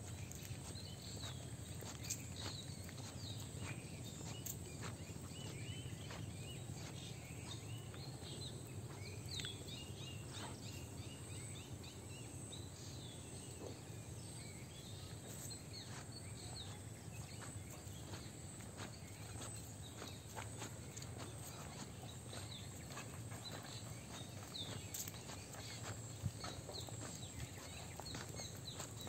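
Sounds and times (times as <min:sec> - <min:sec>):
footsteps on wet brick path: 0:00.0 - 0:09.6, 0:14.8 - 0:29.0
bird chirps: 0:00.0 - 0:29.0
low background hum: 0:00.0 - 0:29.0.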